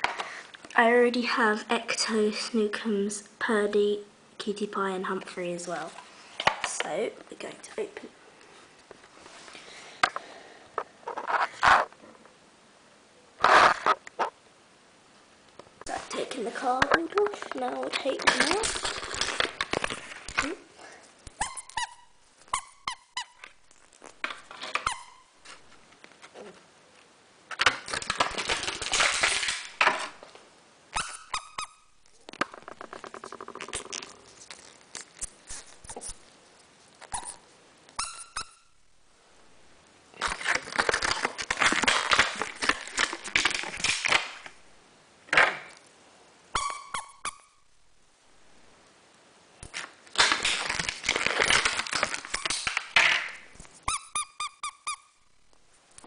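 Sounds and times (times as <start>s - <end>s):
plastic packets crinkling: 17.0s - 20.5s, 27.6s - 30.2s, 32.1s - 36.3s, 40.2s - 44.6s, 49.7s - 53.8s
plastic squeaking against plastic: 21.3s - 25.6s, 30.9s - 36.2s, 37.0s - 38.8s, 46.6s - 47.6s, 50.2s - 53.0s, 53.8s - 55.2s.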